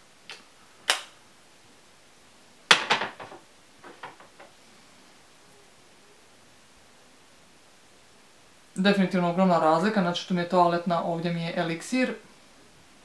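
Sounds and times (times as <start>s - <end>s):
bottle clattering and clicking: 2.7s - 4.5s.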